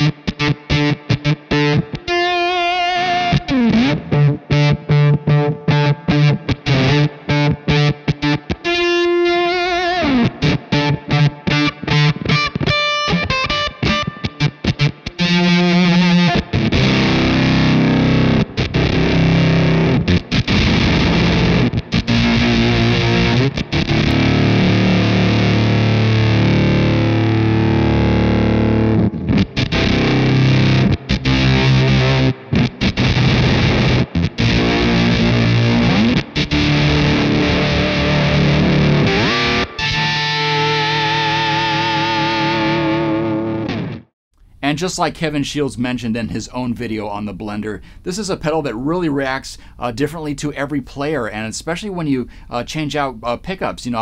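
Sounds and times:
distorted fuzz electric guitar: 0.0s - 44.1s.

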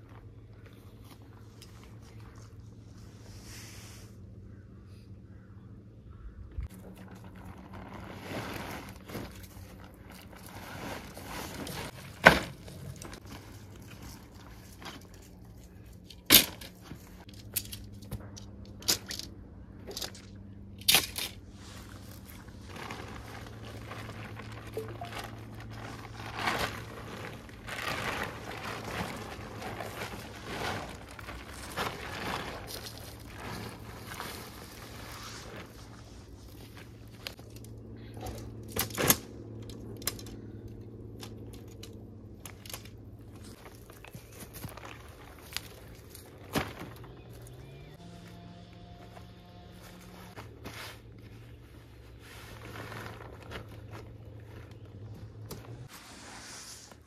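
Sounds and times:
faint low hum: 0.0s - 55.9s
rustling and scraping: 6.6s - 48.4s, 49.0s - 57.0s.

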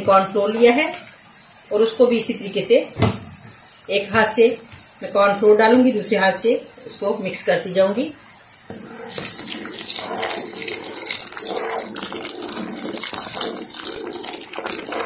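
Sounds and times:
soup boiling and bubbling: 8.0s - 15.0s
spoon stirring soup: 8.6s - 15.0s.

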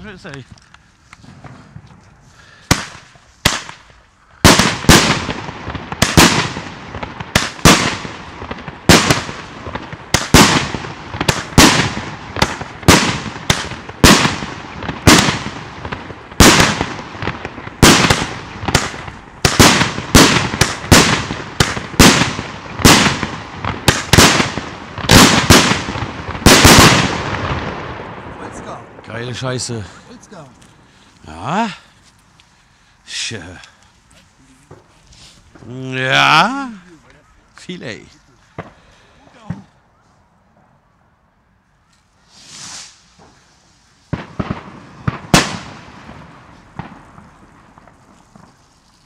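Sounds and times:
small fireworks pops: 0.2s - 27.7s, 33.5s - 36.1s, 38.4s - 39.8s, 41.9s - 49.0s
fireworks bangs echoing: 1.2s - 30.5s, 37.8s - 39.8s, 42.3s - 48.8s.

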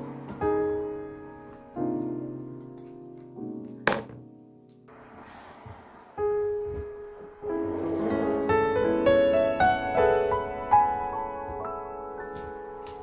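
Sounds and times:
soft piano music: 0.0s - 5.2s, 5.8s - 13.0s.

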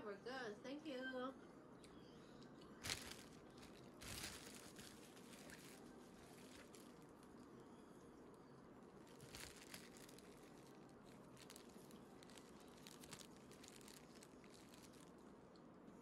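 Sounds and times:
soft clicks and crackles: 8.2s - 15.7s.

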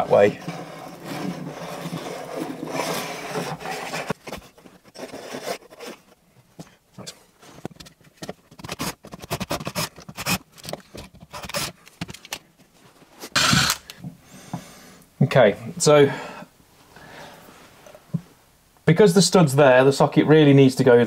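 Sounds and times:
tool scraping plasterboard: 0.0s - 6.2s, 7.5s - 11.8s.

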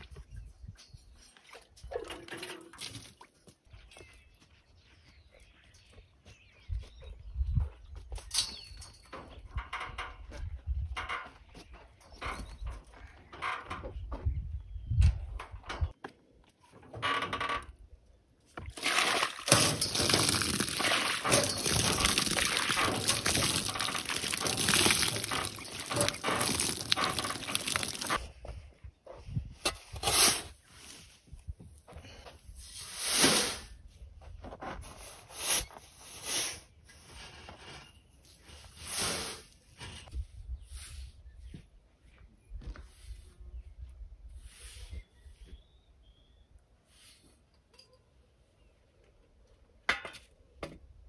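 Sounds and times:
water splashing on stone wall: 18.7s - 28.2s
shovel scooping sand: 18.8s - 28.2s, 29.9s - 31.2s, 32.6s - 33.8s, 34.8s - 40.1s
sand tipped into wheelbarrow: 32.6s - 33.8s, 38.4s - 40.0s.

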